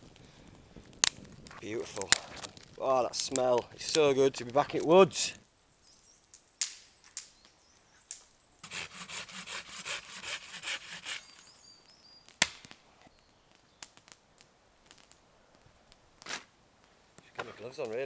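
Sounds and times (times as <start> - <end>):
loud sharp wood crack: 0.0 - 4.9, 6.6 - 11.5, 12.3 - 12.9, 15.9 - 16.5
hand saw cutting wood: 8.6 - 11.4.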